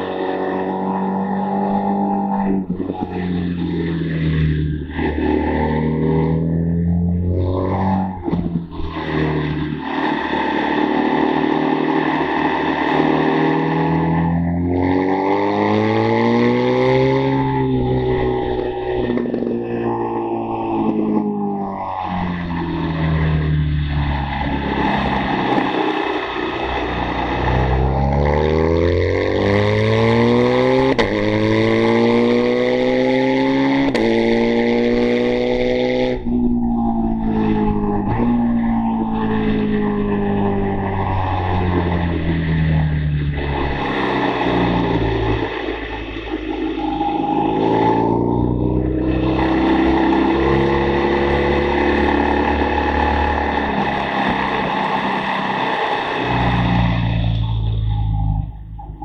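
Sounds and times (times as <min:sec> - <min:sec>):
motorcycle engine accelerating: 0:00.0 - 0:59.0
motorcycle engine running hard: 0:43.2 - 0:57.9.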